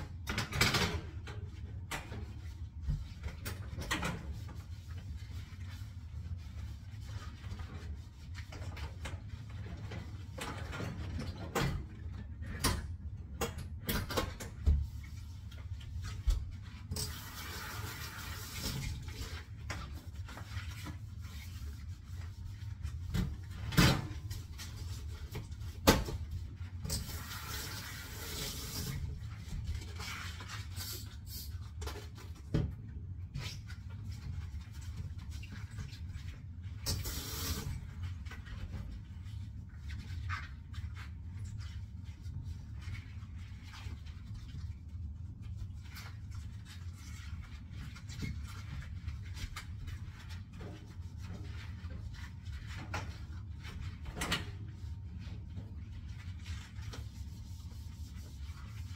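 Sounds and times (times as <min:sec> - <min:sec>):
tap running water: 0:36.8 - 0:38.0.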